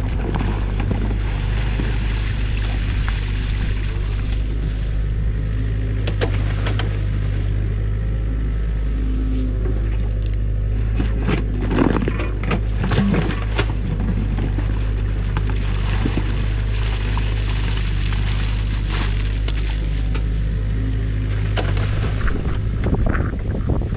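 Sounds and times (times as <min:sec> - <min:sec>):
excavator diesel engine running: 0:00.0 - 0:23.9
bucket scraping and cracking sticks: 0:11.0 - 0:14.6, 0:15.3 - 0:20.3.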